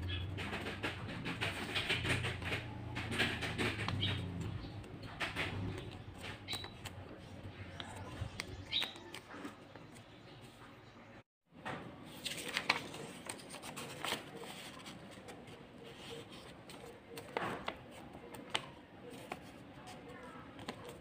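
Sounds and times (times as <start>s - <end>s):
paper rustling and crinkling: 12.0s - 21.0s.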